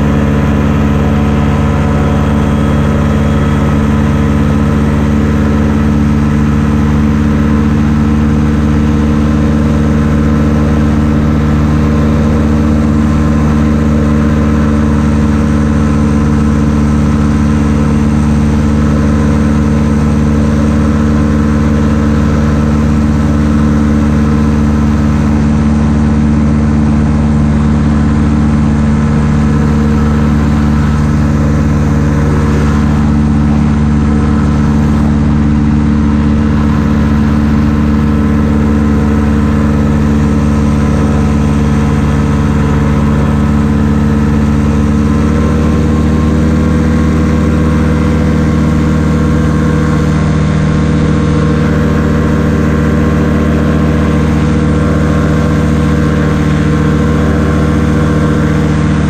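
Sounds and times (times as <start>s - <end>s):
ultralight aircraft engine running: 0.0s - 59.0s.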